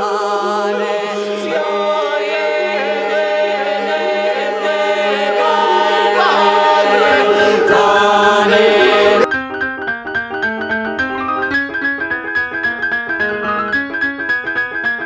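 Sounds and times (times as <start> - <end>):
choir singing chant-like notes: 0.0 - 9.3
piano notes: 0.0 - 15.0.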